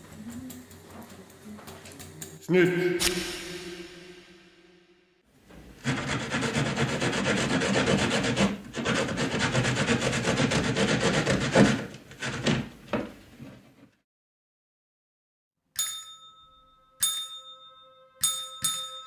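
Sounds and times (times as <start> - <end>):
rough rasping scrape on wood: 5.8 - 12.7.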